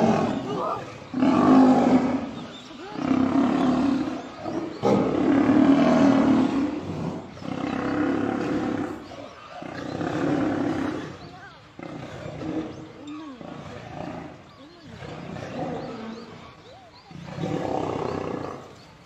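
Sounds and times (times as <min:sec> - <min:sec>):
lions growling: 0:00.0 - 0:19.0.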